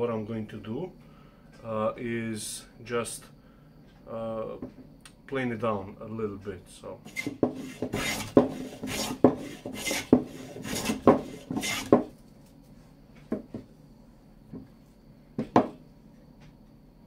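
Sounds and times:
hand plane shaving strokes: 7.1 - 12.1
sharp wooden knocks: 7.2 - 12.1, 15.4 - 15.8.

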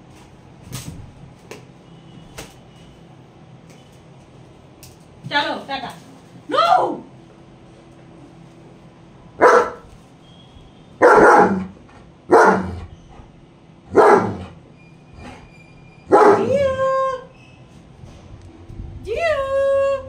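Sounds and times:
dog barking and whining: 9.4 - 9.9, 11.0 - 13.2, 13.9 - 14.6, 15.2 - 17.3.

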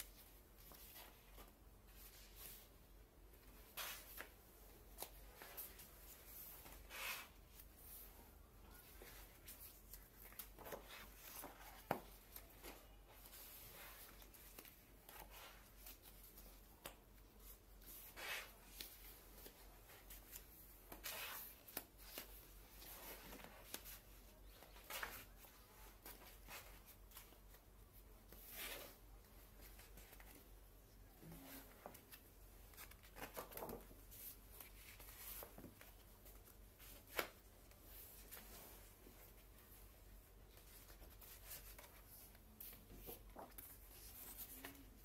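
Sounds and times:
paper pages turning: 40.6 - 45.0.

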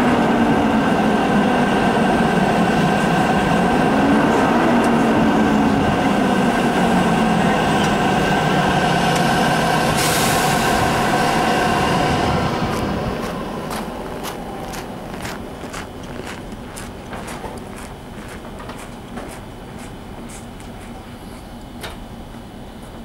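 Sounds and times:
electric locomotive humming and whining: 0.0 - 23.0
air hiss: 9.9 - 11.0.

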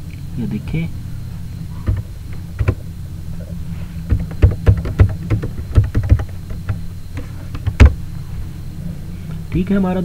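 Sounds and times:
steady low hum: 0.0 - 10.0
keyboard key clicks: 1.9 - 2.8, 4.1 - 6.8.

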